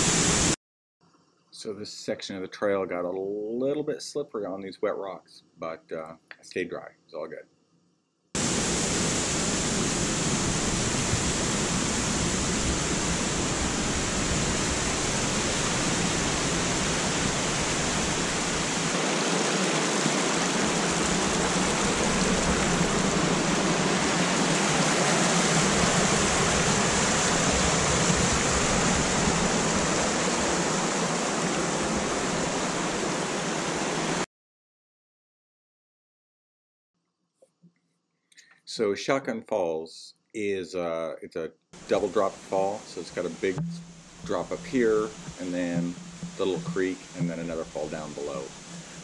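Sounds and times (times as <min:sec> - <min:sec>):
whitewater creek rushing: 0:08.4 - 0:34.2, 0:41.8 - 0:49.0.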